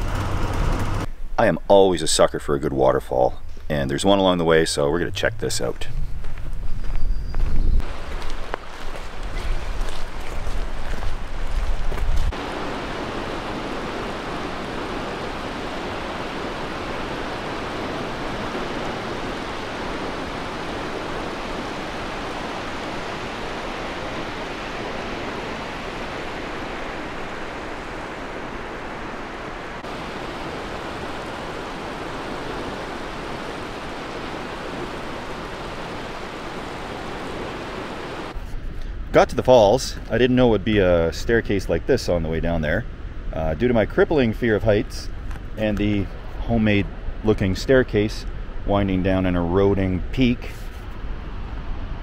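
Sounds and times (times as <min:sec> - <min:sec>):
waterfall rushing: 0:07.8 - 0:10.1, 0:12.3 - 0:38.4.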